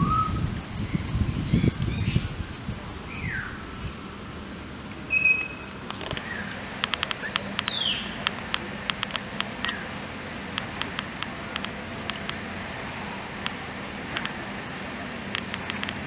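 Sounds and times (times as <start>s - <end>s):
falling bird chirps: 5.1s - 8.2s
sharp irregular clicks: 5.9s - 9.9s, 10.5s - 12.5s, 13.4s - 14.4s, 15.3s - 16.0s.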